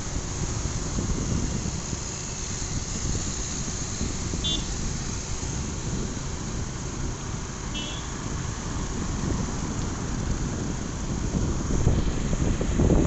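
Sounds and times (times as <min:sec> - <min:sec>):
motorbike engine and road noise: 0:00.0 - 0:13.0
wind buffeting microphone: 0:00.0 - 0:13.0.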